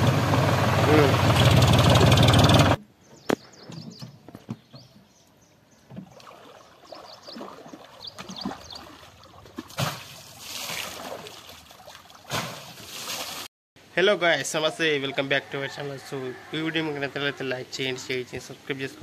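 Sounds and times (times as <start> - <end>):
water sloshing around wading person: 5.9 - 13.5.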